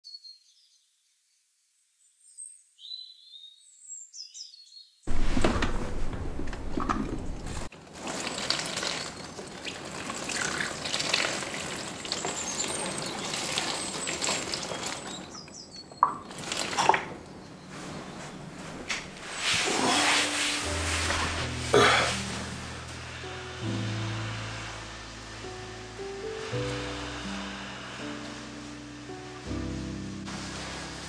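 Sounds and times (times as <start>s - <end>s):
water pouring onto plant: 7.7s - 15.4s, 16.2s - 17.1s, 30.2s - 31.0s.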